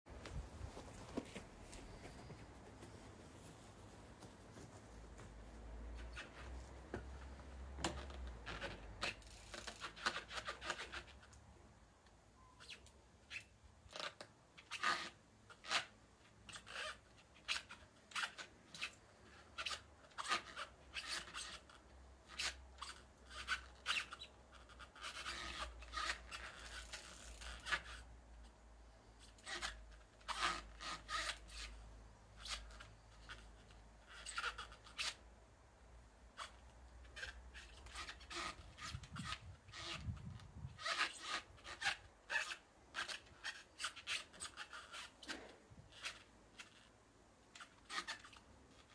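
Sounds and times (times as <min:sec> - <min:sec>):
tyres scuffing: 0:00.1 - 0:05.7.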